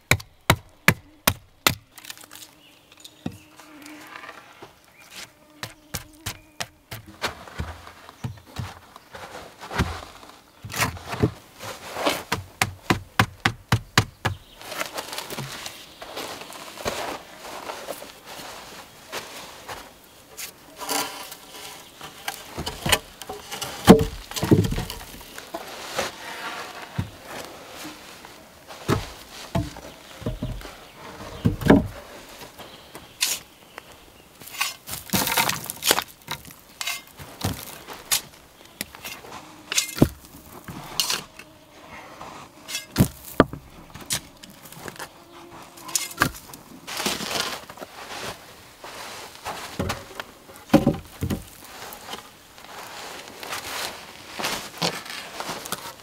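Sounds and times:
logs knocking and thudding: 0:00.0 - 0:02.2, 0:12.2 - 0:14.6, 0:22.0 - 0:26.1, 0:26.8 - 0:28.0, 0:28.7 - 0:32.0, 0:34.6 - 0:39.1, 0:39.7 - 0:41.2, 0:42.8 - 0:45.0, 0:49.6 - 0:52.2
shovel scraping: 0:20.4 - 0:32.5, 0:33.2 - 0:33.5, 0:34.4 - 0:41.4, 0:42.2 - 0:50.2.

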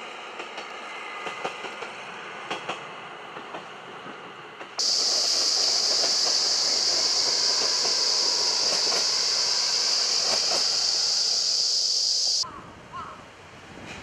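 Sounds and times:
railcar rail clatter: 0:00.2 - 0:12.4
high-pitched insect hiss: 0:04.8 - 0:12.4.

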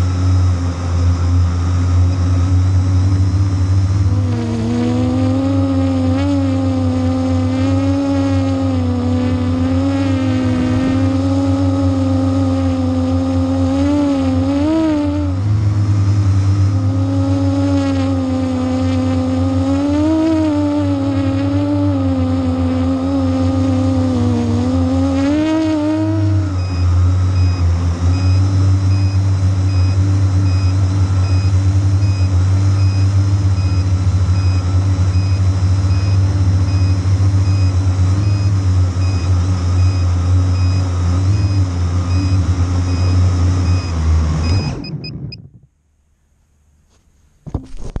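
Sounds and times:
drone motors whirring: 0:01.3 - 0:15.4, 0:16.0 - 0:45.6.

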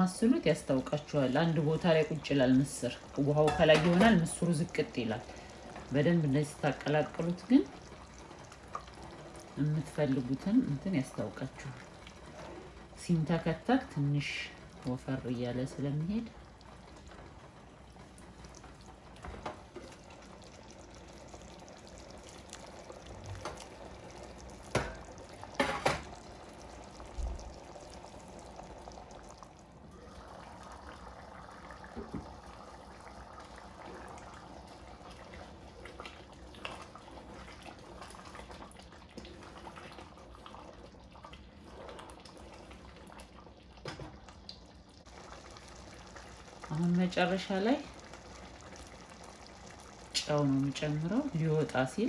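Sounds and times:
stew bubbling in a pot: 0:00.0 - 0:52.0
wooden spoon stirring a pot: 0:00.3 - 0:29.4, 0:33.4 - 0:44.4.

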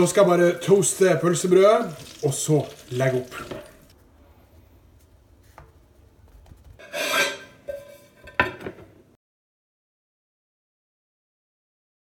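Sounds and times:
kitchenware scrape: 0:06.8 - 0:09.0.

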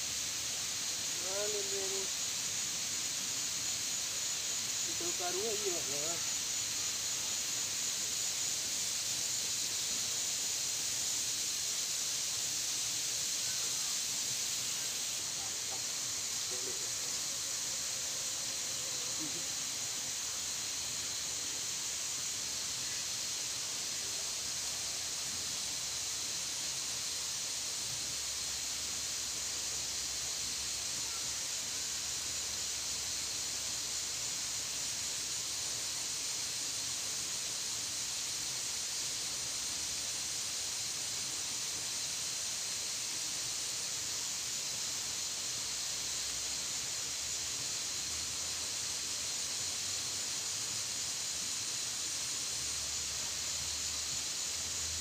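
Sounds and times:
high-pitched insect chorus: 0:00.0 - 0:55.0.

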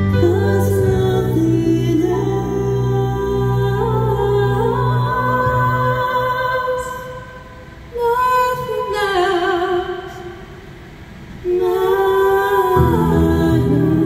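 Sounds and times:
low bass notes: 0:00.0 - 0:06.3, 0:12.8 - 0:14.0
woman singing with vibrato: 0:00.0 - 0:10.8, 0:11.4 - 0:14.0.

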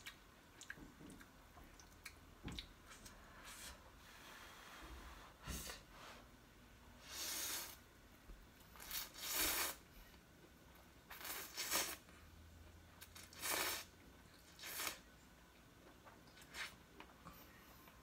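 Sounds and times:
person slurping noodles: 0:08.8 - 0:09.8.

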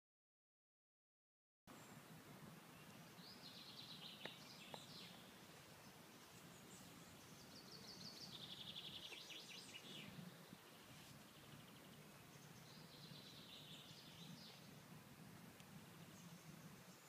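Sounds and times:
faint outdoor ambience: 0:01.7 - 0:17.0
songbirds trilling: 0:01.7 - 0:17.0.

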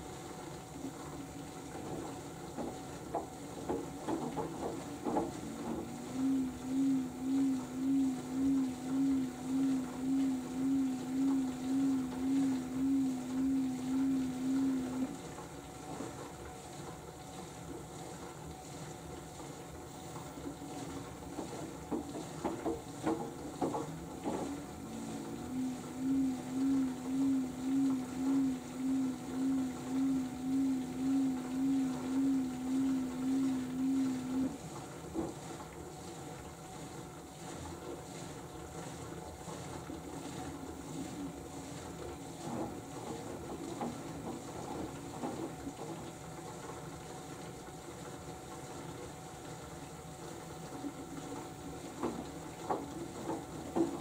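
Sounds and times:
washing machine motor whine: 0:00.0 - 0:54.0
washing machine running hum: 0:00.0 - 0:54.0.

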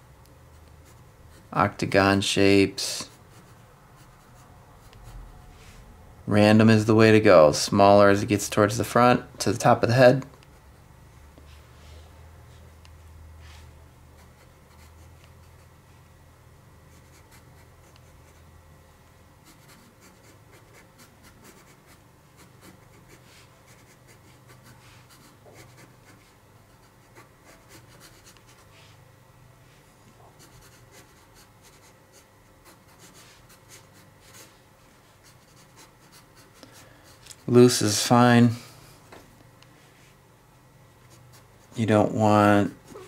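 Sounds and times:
pencil scratching on paper: 0:03.0 - 0:05.3, 0:16.9 - 0:18.5, 0:19.4 - 0:28.9, 0:30.3 - 0:37.6, 0:41.0 - 0:43.0.

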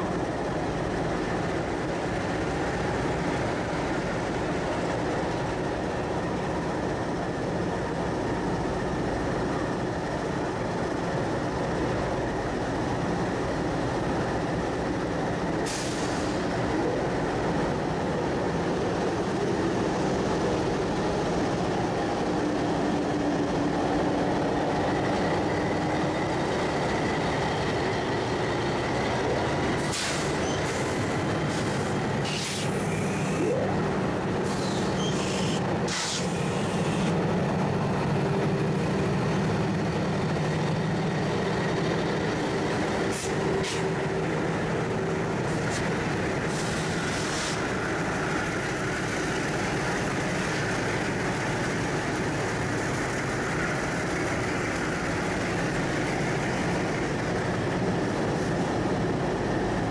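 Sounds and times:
diesel locomotives idling: 0:00.0 - 0:59.9
short sharp hissing: 0:15.7 - 0:16.4, 0:29.8 - 0:30.9, 0:31.5 - 0:33.3, 0:34.4 - 0:37.1, 0:46.5 - 0:47.6.

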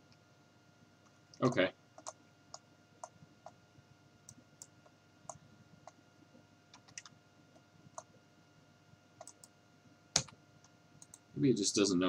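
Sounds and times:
mouse and keyboard clicks: 0:09.2 - 0:09.5.

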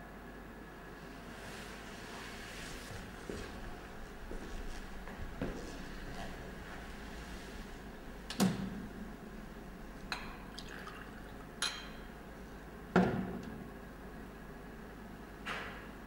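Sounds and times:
drink pouring into glass: 0:10.1 - 0:12.1
glass clinking on table: 0:11.6 - 0:12.1.

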